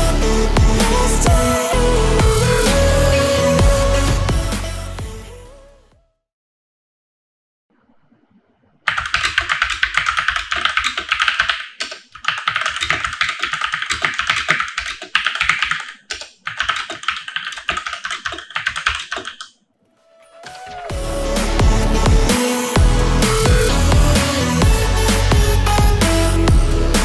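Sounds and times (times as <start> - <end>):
fast typing on mechanical keyboard: 8.9 - 19.5.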